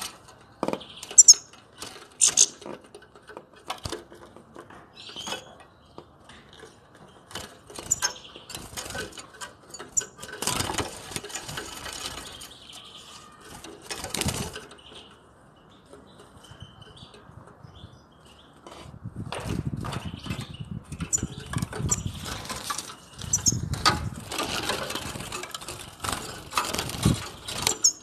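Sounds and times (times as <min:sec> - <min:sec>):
birds fluttering in wire cage: 0:00.0 - 0:05.6, 0:06.6 - 0:15.1, 0:18.6 - 0:28.0
high bird chirps: 0:00.8 - 0:01.5, 0:02.2 - 0:02.6, 0:23.0 - 0:23.7, 0:27.4 - 0:28.0.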